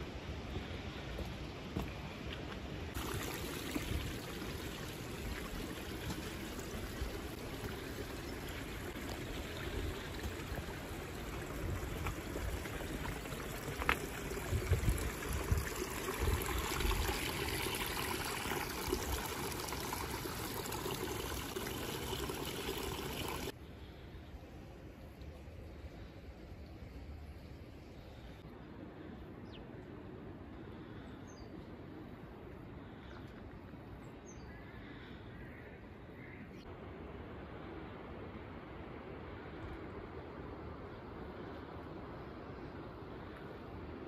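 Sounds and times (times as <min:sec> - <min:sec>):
stream water flowing: 0:02.2 - 0:23.6.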